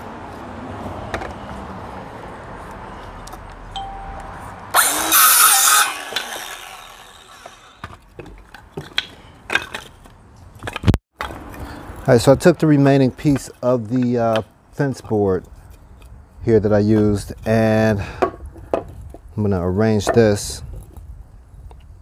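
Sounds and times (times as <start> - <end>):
circular saw cutting wood: 4.7 - 7.8
saw blade spinning down: 4.7 - 7.8.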